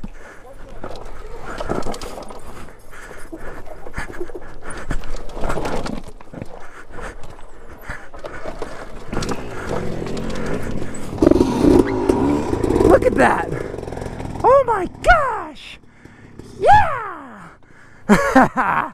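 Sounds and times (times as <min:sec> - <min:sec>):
tyres clattering over rocks: 0:00.6 - 0:03.3, 0:07.2 - 0:12.9.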